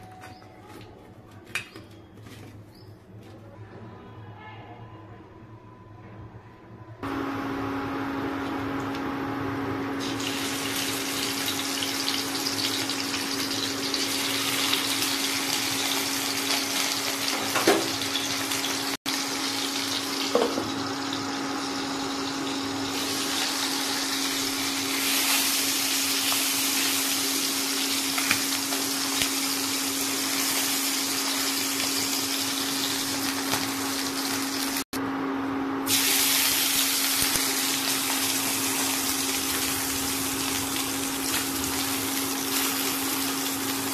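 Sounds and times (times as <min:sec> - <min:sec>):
fish sizzling in oil: 0:10.0 - 0:34.8, 0:35.9 - 0:43.9.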